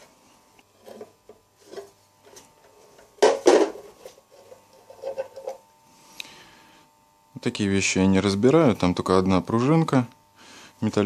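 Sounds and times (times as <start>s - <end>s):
hard objects clunking and scraping: 0.8s - 5.6s.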